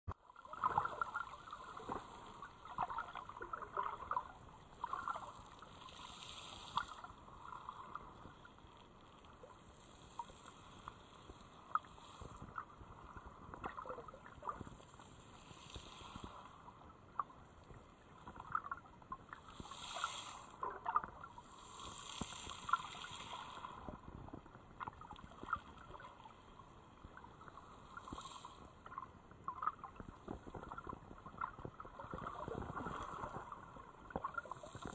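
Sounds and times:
underwater sloshing and gurgling: 0:00.1 - 0:34.9.

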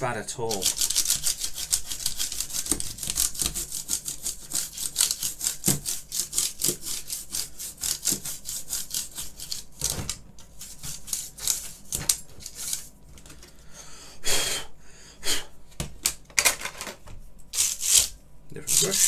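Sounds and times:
toothbrush scrubbing keyboard: 0:00.4 - 0:12.9, 0:17.6 - 0:19.0.

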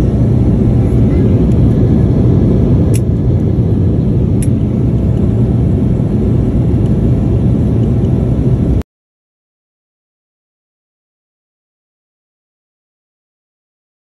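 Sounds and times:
jet airliner cabin rumble: 0:00.0 - 0:08.8.

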